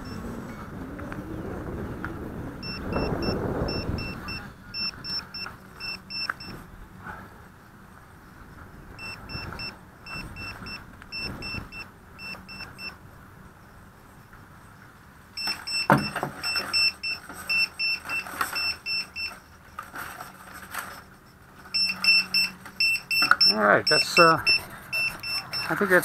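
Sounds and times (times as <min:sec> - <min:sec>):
short high electronic beeps: 0:02.6 - 0:06.5, 0:21.8 - 0:25.8.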